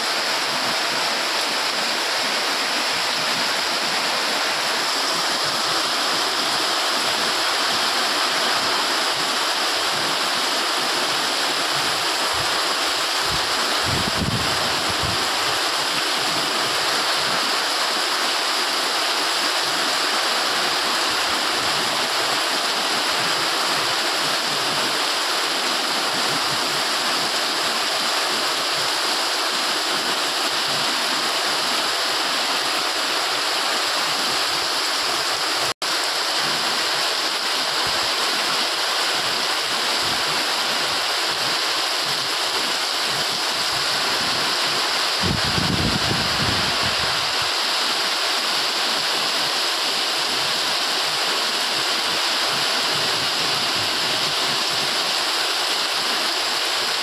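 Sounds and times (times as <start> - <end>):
heavy rain pouring: 0.0 - 57.0.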